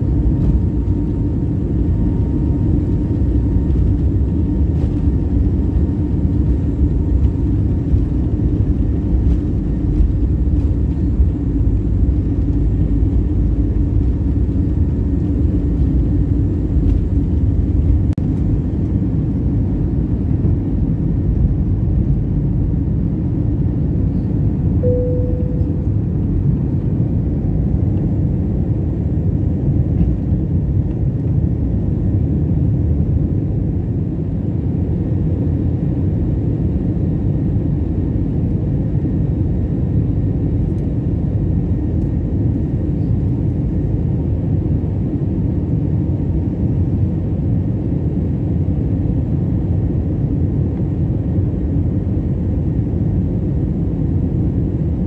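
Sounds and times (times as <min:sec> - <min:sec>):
jet engines rumbling in cabin: 0:00.0 - 0:55.0
brief single tone: 0:24.8 - 0:26.3.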